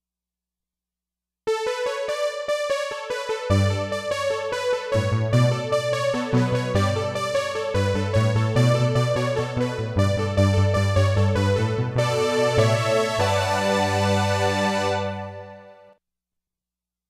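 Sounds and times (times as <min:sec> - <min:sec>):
synthesizer low notes: 0:03.5 - 0:15.8
synthesizer high notes: 0:05.1 - 0:15.8.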